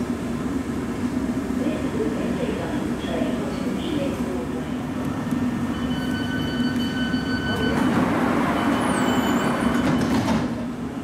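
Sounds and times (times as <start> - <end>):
train equipment hum: 0.0 - 11.0
train doors knocking shut: 9.4 - 10.8.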